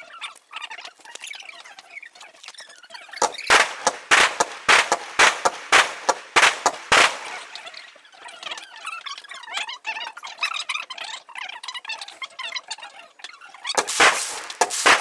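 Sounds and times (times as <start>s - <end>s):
fireworks bangs: 3.2s - 7.9s, 13.8s - 15.0s.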